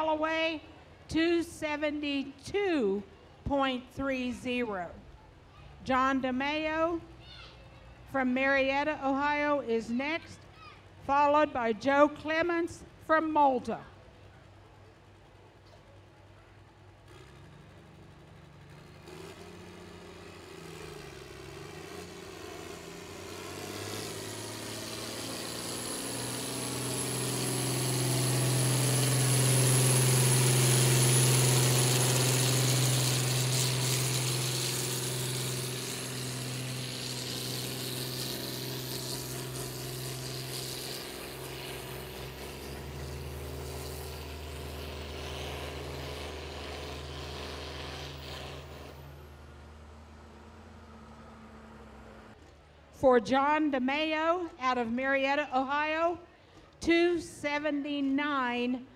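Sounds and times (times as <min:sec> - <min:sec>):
pulling vehicle engine at full throttle: 0:17.0 - 0:52.4.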